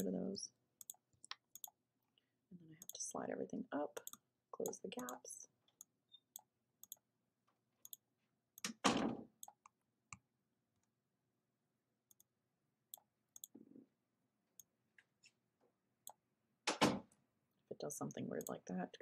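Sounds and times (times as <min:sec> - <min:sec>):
computer mouse clicking: 0:00.8 - 0:01.8, 0:04.0 - 0:05.2, 0:05.8 - 0:07.1, 0:07.8 - 0:08.0, 0:12.1 - 0:12.3, 0:12.9 - 0:13.6.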